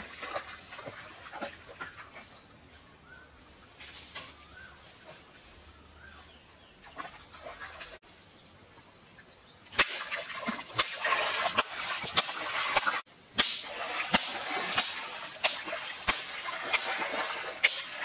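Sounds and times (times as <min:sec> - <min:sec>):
water splashing: 0:00.0 - 0:02.4, 0:06.7 - 0:08.1, 0:09.7 - 0:18.0
hands slapping water: 0:09.7 - 0:18.0.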